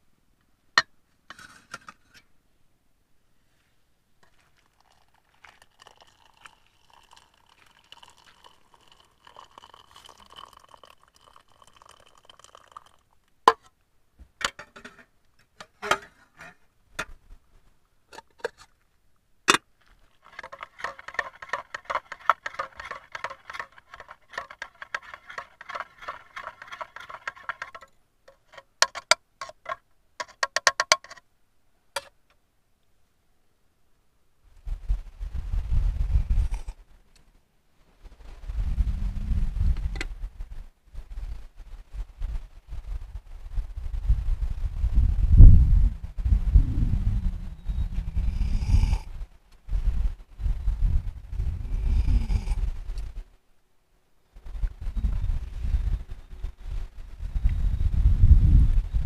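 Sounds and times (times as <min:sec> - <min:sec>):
spoon stirring in enamel mug: 0:04.2 - 0:13.1, 0:19.9 - 0:31.2
hot water trickling into mug: 0:04.2 - 0:13.2, 0:20.1 - 0:27.9, 0:48.3 - 0:49.0.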